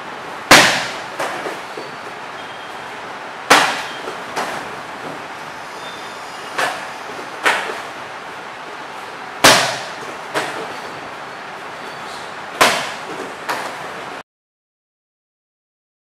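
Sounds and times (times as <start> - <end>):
kicks and punches slapping pads: 0.5 - 1.5, 3.5 - 4.6, 9.4 - 10.6, 12.6 - 13.7.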